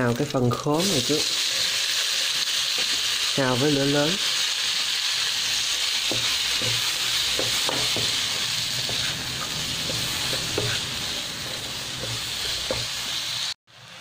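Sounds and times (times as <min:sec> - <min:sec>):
food sizzling in hot oil: 0:00.0 - 0:14.0
wooden spatula scraping pan: 0:05.6 - 0:13.2.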